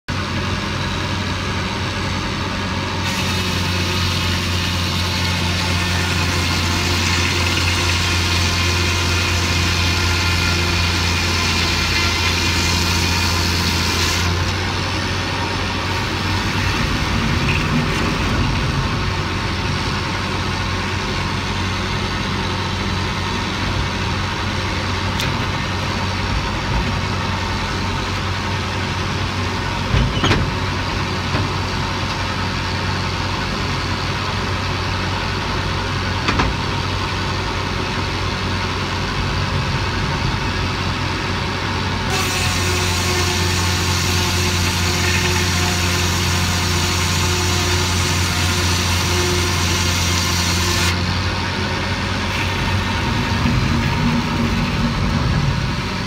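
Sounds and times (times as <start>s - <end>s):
saw cutting wood: 3.0s - 18.8s, 42.1s - 51.2s, 52.1s - 55.1s.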